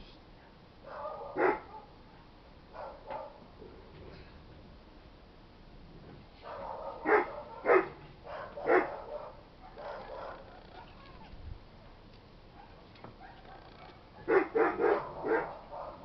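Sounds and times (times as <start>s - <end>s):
dog barking and yipping: 0.8s - 2.0s, 2.7s - 3.4s, 6.4s - 11.9s, 12.5s - 16.0s.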